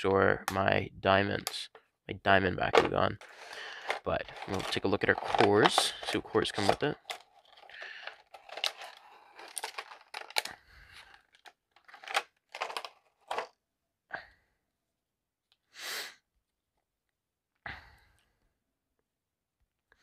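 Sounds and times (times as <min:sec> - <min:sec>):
plastic bag crinkling: 0:03.2 - 0:13.5.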